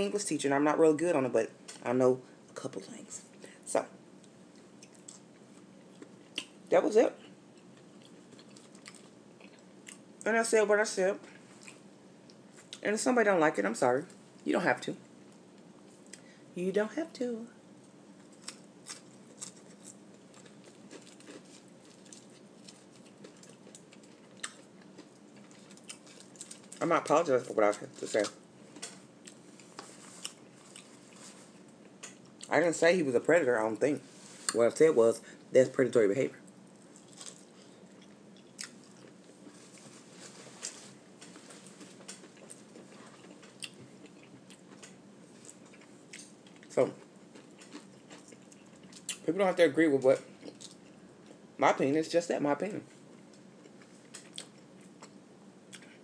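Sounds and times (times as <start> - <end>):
low steady hum: 0.0 - 56.0
person chewing food: 4.2 - 6.6, 7.3 - 10.2, 11.3 - 12.8, 18.1 - 26.8, 28.1 - 32.5, 36.4 - 49.2, 50.3 - 51.5, 53.0 - 56.0.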